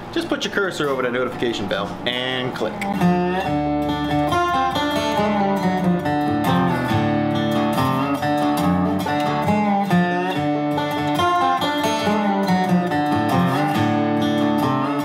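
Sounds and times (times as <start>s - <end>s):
acoustic guitar music: 0.0s - 15.0s.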